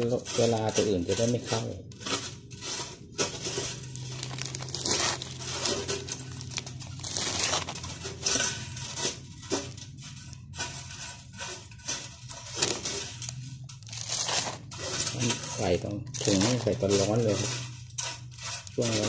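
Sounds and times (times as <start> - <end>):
plastic bag crinkling: 3.3 - 9.8, 12.3 - 19.0.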